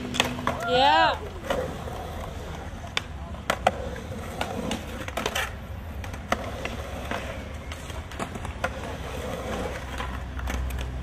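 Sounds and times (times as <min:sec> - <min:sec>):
skateboard clacks: 0:00.0 - 0:11.0
skateboard wheels rolling: 0:00.0 - 0:11.0.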